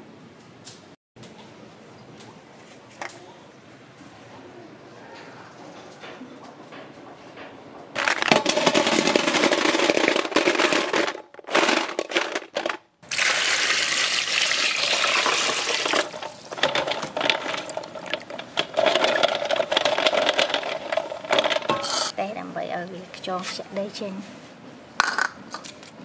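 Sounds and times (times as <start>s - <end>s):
water pouring into metal bowl: 13.1s - 19.6s.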